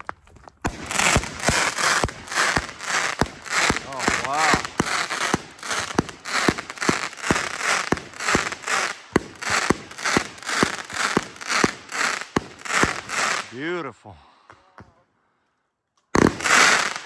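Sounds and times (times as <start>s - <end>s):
firework burst hiss: 0.7s - 13.5s.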